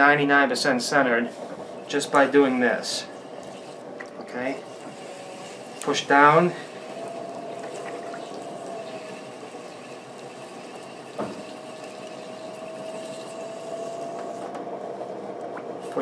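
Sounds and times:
pottery wheel whining: 0.0 - 16.0.

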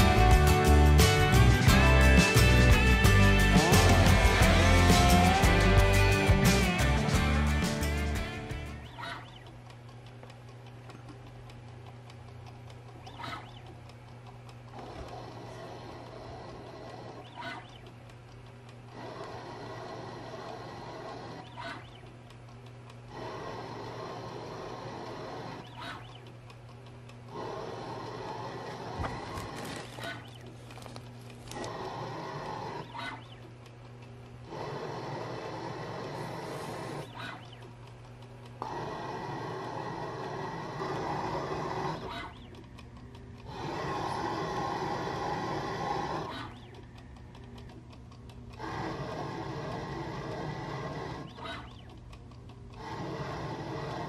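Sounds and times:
lathe cutting noise: 0.0 - 8.8
lathe spindle hum: 0.0 - 54.0
light rapid ticks: 1.2 - 29.0, 29.9 - 54.0
scratchy cutting sound: 34.4 - 37.5.

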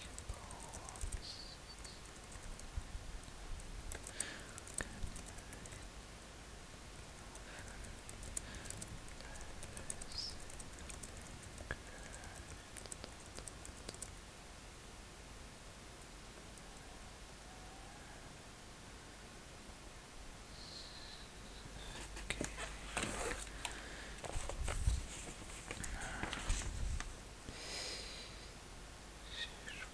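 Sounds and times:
typing on computer keyboard: 1.8 - 2.7, 3.9 - 5.8, 7.3 - 14.2.

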